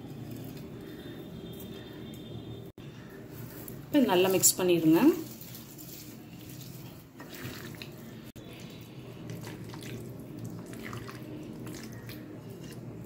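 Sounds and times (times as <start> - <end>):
hand squishing wet marinade: 3.4 - 13.0.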